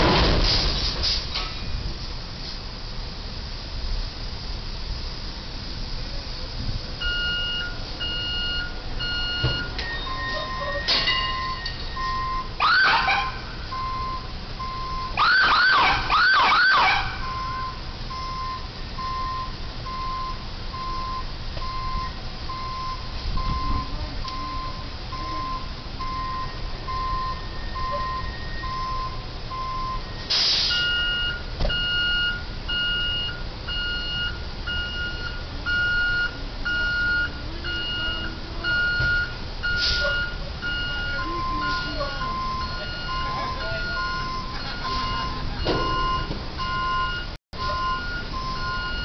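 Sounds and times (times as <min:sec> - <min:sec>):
steady electronic beep: 0:07.0 - 0:12.5, 0:17.2 - 0:49.0
ambulance siren yelp: 0:08.1 - 0:17.8, 0:24.3 - 0:31.3, 0:35.1 - 0:49.0.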